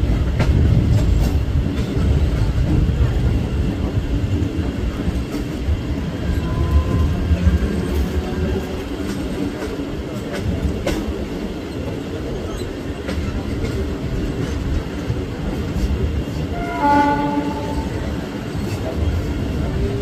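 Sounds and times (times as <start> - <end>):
train running on track: 0.0 - 20.0
train horn: 6.4 - 8.4, 16.5 - 18.1.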